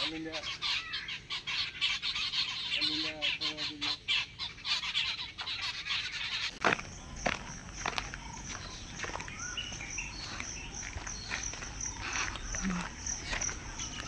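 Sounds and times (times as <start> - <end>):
many birds chirping: 0.0 - 14.0
footstep thuds: 6.6 - 14.0.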